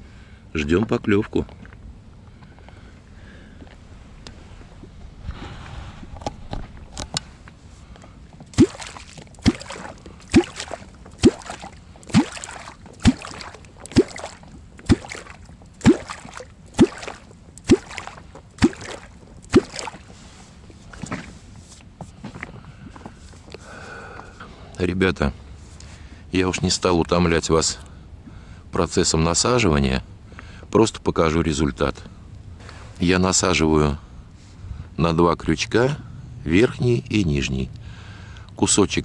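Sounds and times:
wooden club striking water: 8.5s - 20.1s.

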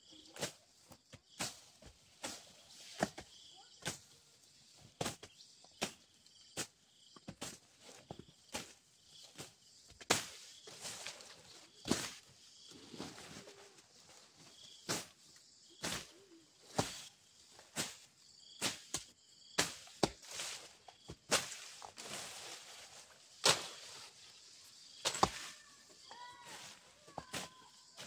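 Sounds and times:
blade slashing through grass: 21.3s - 22.7s, 23.4s - 24.1s.

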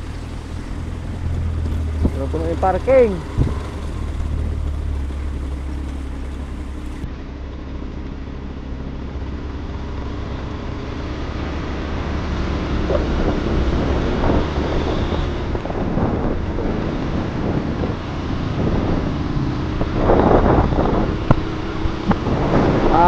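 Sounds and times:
wind buffeting microphone: 0.0s - 7.0s, 12.8s - 23.0s
motorcycle engine running: 0.0s - 12.0s.

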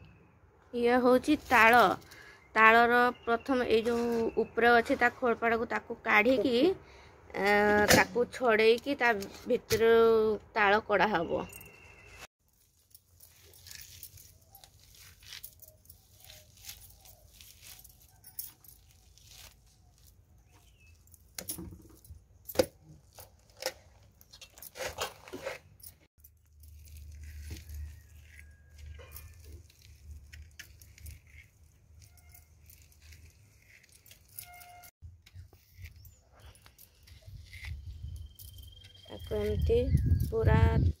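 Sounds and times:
fruit pulp tearing by hand: 12.5s - 21.0s, 26.3s - 38.4s.

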